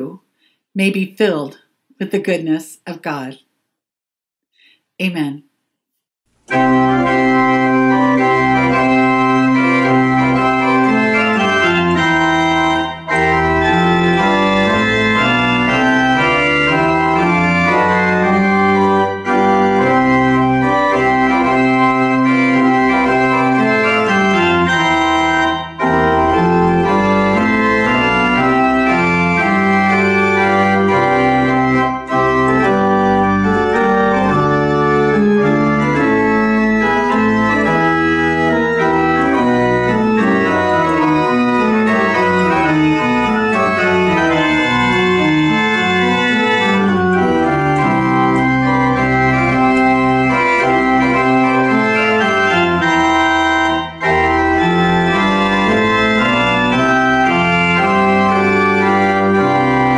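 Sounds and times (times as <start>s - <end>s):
pipe organ chords: 6.4s - 59.9s.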